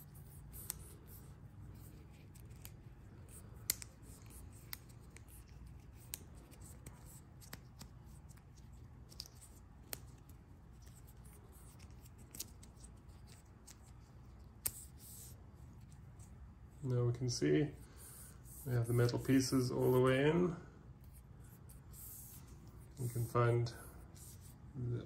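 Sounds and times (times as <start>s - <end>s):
light rubbing: 17.9s - 24.6s.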